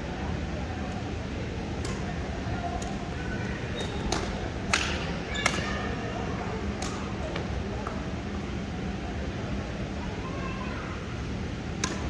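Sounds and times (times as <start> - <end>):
steady background hum: 0.0 - 12.0
rackets striking shuttlecock: 1.8 - 2.1, 3.9 - 5.7, 6.8 - 8.0, 11.8 - 12.0.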